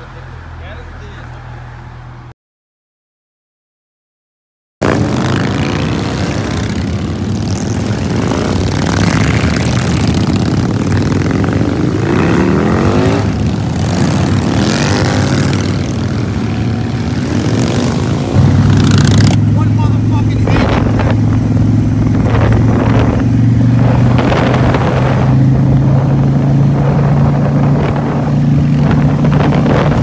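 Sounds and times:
motorcycle engines revving: 0:04.8 - 0:30.0.

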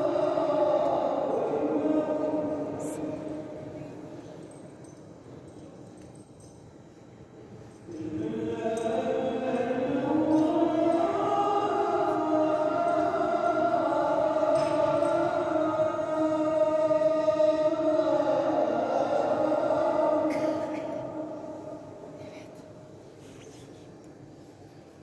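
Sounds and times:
chanting in long gliding notes: 0:00.0 - 0:04.2, 0:07.9 - 0:22.6.

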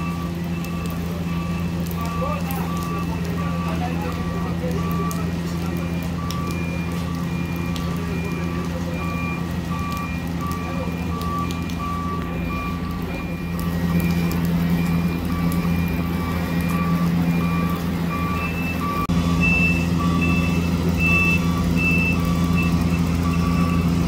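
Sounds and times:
diesel engines running: 0:00.0 - 0:24.0
reversing alarm beeping: 0:00.0 - 0:24.0
higher-pitched reversing beep: 0:05.9 - 0:24.0.

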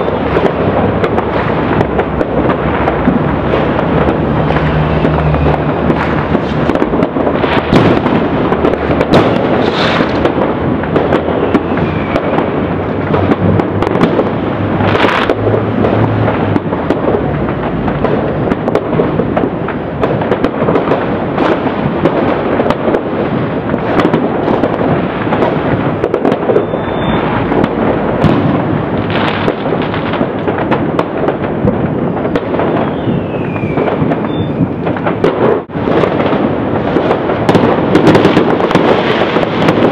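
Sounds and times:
falling firework whistles: 0:00.0 - 0:03.0, 0:03.6 - 0:08.1, 0:09.0 - 0:10.3, 0:11.0 - 0:12.7, 0:26.3 - 0:27.6, 0:32.0 - 0:35.0
fireworks crackling and banging: 0:00.0 - 0:39.9.

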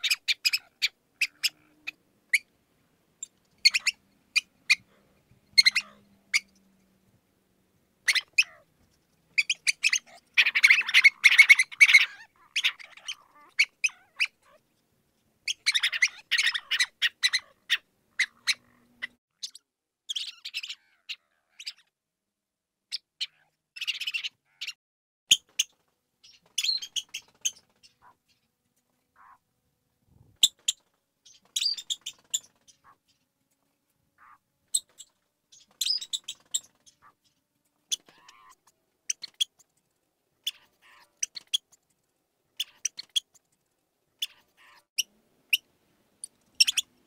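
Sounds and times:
mouse squeaking: 0:00.0 - 0:02.5, 0:03.2 - 0:04.9, 0:05.5 - 0:06.6, 0:08.0 - 0:08.6, 0:09.4 - 0:14.6, 0:15.5 - 0:21.9, 0:22.9 - 0:28.2, 0:29.2 - 0:29.4, 0:30.4 - 0:33.2, 0:34.2 - 0:37.2, 0:37.9 - 0:39.7, 0:40.4 - 0:41.8, 0:42.6 - 0:43.5, 0:44.2 - 0:44.9, 0:46.6 - 0:47.0.

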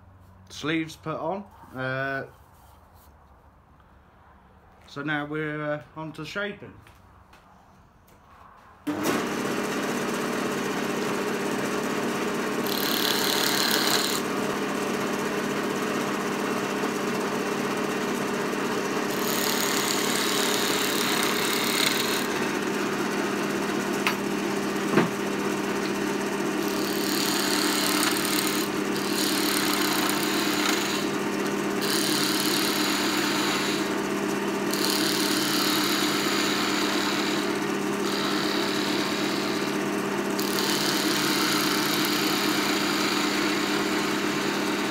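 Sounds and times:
lathe motor hum: 0:08.9 - 0:44.9
tool scraping spinning wood: 0:11.0 - 0:44.9.

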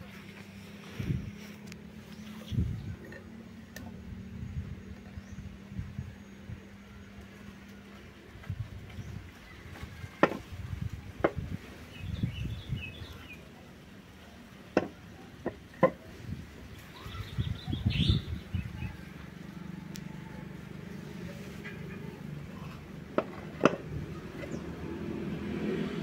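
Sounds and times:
low rumbling handling noise: 0:00.0 - 0:13.4, 0:14.6 - 0:25.6
wooden knocks and taps: 0:10.2 - 0:10.5, 0:14.8 - 0:16.0, 0:23.1 - 0:23.9.

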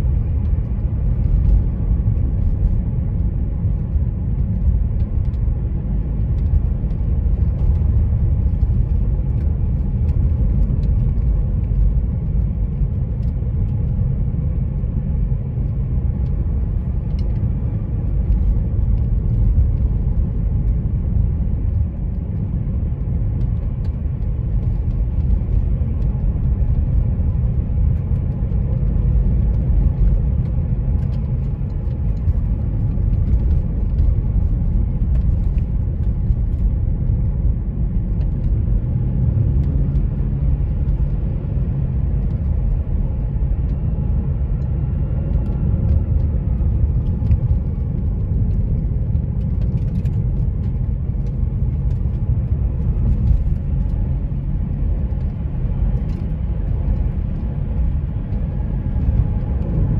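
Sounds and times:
car tyres and engine rumbling: 0:00.0 - 0:59.9.

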